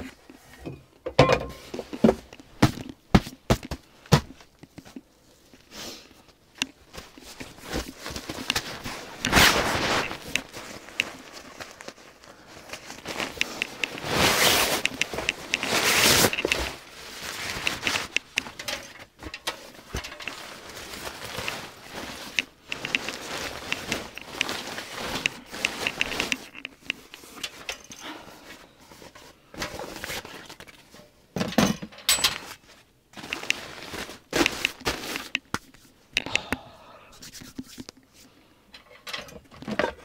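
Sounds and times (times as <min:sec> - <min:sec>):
clothing and gear rustling: 0:01.6 - 0:31.0, 0:32.4 - 0:36.0.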